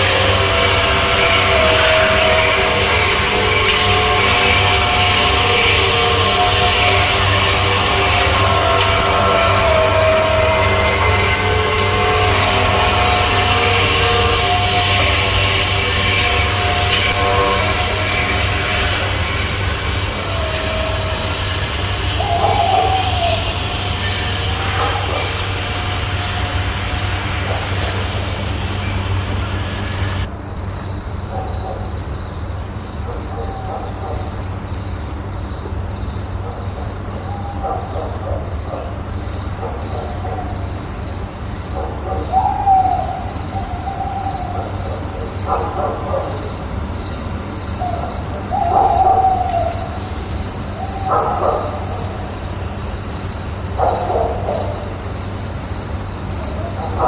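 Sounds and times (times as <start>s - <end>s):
loud hiss: 0.0s - 31.0s
cricket-like chirping: 0.0s - 57.0s
hoot-like calls: 22.0s - 25.7s, 36.5s - 39.0s, 41.7s - 46.7s, 47.7s - 52.6s.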